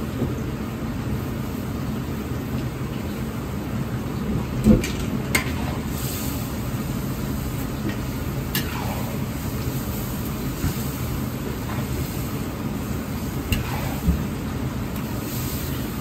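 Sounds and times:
gas burner rushing: 4.6 - 16.0.

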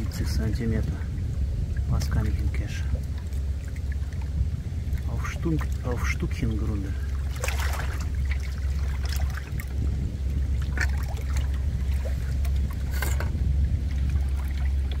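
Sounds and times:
steady low rumble: 0.0 - 15.0
water splashing and sloshing: 0.0 - 15.0
sharp splashes: 6.9 - 9.8.

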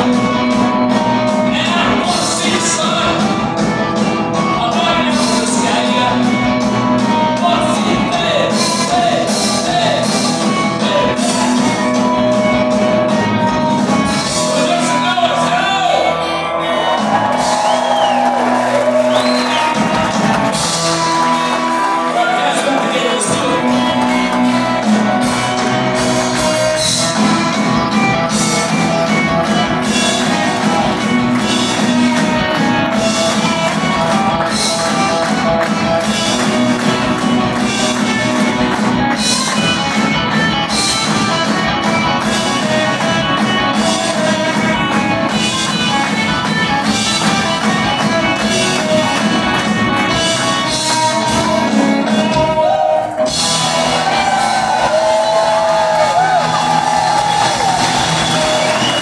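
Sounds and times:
drum kit steady beat: 0.0 - 16.1, 16.8 - 59.0
electric guitars: 0.0 - 59.0
person singing: 1.0 - 3.5, 47.0 - 54.7.

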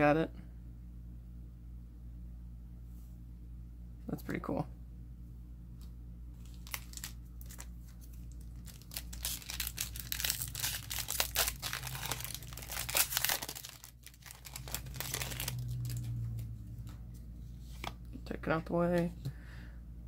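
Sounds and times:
foil wrapper tearing and crinkling: 6.4 - 16.2.

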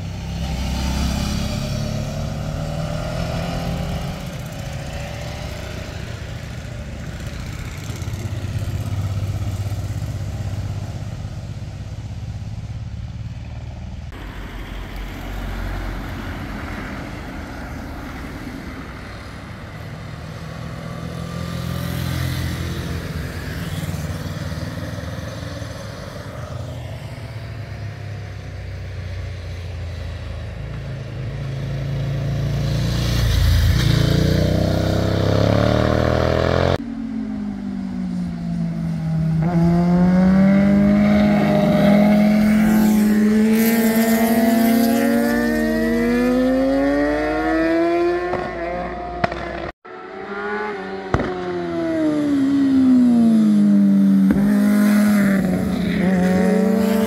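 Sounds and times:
motorcycles riding past: 0.0 - 57.0
motorcycle engine accelerating: 0.1 - 13.6, 31.2 - 57.0.

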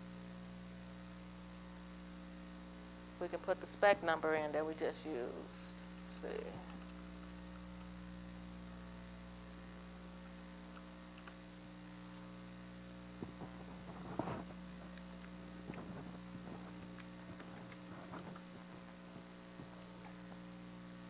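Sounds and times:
electrical mains hum: 0.0 - 21.0
faint keyboard clicks: 10.7 - 11.4.

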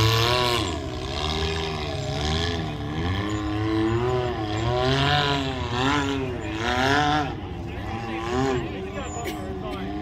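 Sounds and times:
utility vehicle engine revving: 0.0 - 10.0.

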